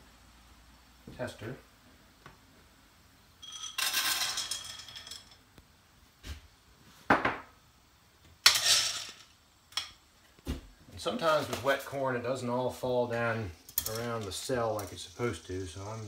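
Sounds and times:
corn kernels rattling: 3.4s - 5.4s, 8.4s - 9.3s, 13.6s - 16.0s.

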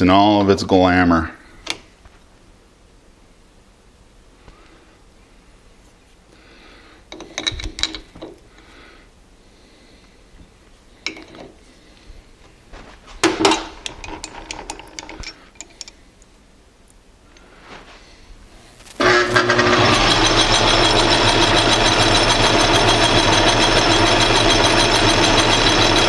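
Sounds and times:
metal clinks and clanks: 13.2s - 15.9s
clicks and rattles: 13.2s - 16.0s.

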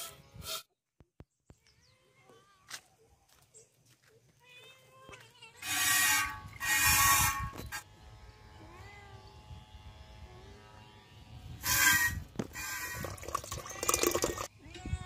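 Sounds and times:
milk squirting into a steel pot: 12.4s - 14.5s.

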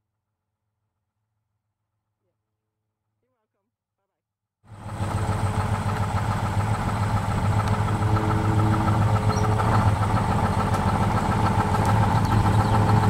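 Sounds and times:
boat engine low drone: 4.7s - 13.0s.

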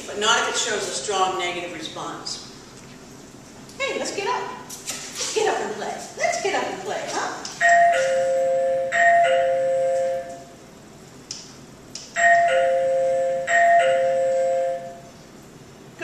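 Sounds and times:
doorbell ding-dong chime: 7.6s - 10.4s, 12.2s - 15.0s.

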